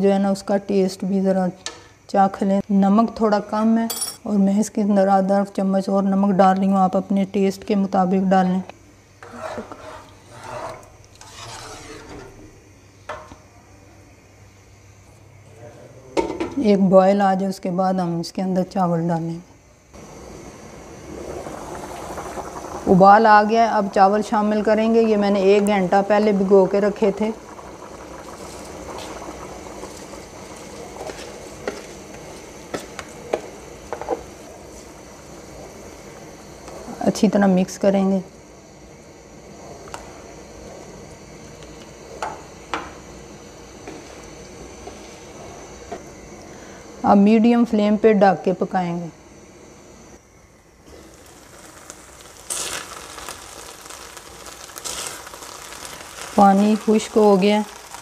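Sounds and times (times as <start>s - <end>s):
stock boiling in a pan: 0.0s - 15.5s, 18.7s - 58.0s
spoon scraping a pan: 9.2s - 12.5s
rice being poured: 24.9s - 33.6s, 50.9s - 58.0s.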